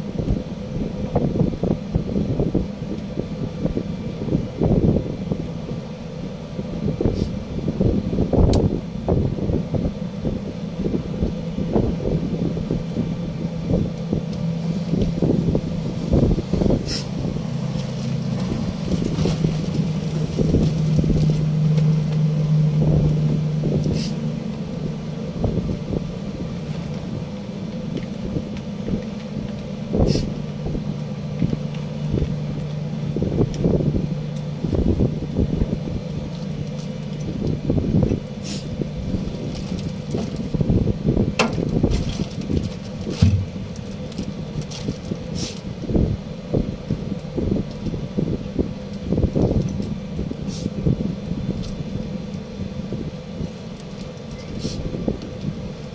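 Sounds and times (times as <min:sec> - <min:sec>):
low machinery hum: 0:00.0 - 0:55.9
wind on microphone: 0:00.0 - 0:55.9.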